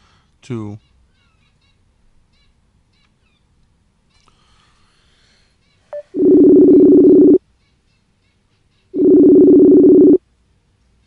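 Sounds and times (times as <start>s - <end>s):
telephone ringback tone: 5.9s - 7.4s, 9.0s - 10.2s.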